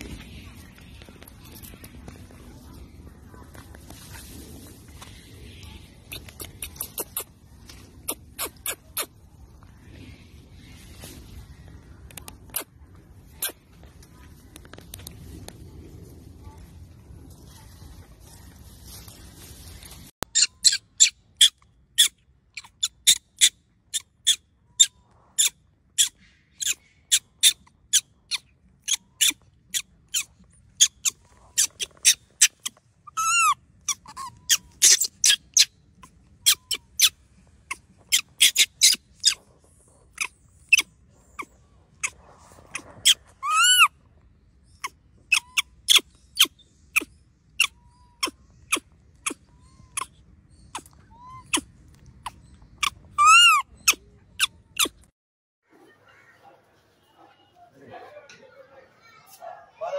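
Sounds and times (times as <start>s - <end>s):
monkey squeaky calls: 20.3s - 39.4s, 40.1s - 43.9s, 44.7s - 55.0s
monkey drawn-out cries: 43.0s - 43.9s, 44.8s - 54.0s.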